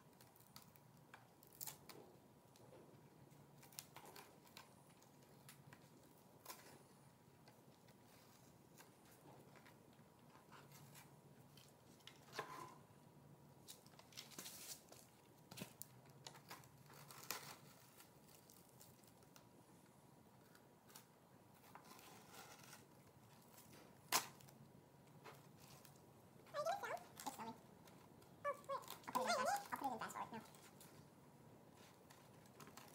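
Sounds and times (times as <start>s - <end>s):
tape peeling off plastic: 21.9s - 24.6s.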